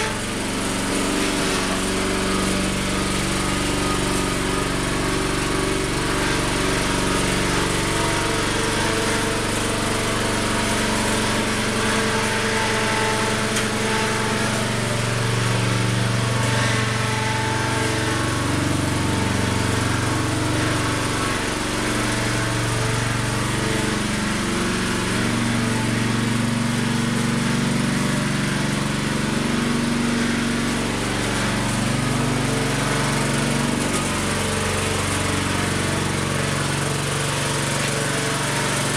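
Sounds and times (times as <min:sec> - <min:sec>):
small dumper engine running: 0:00.0 - 0:38.9.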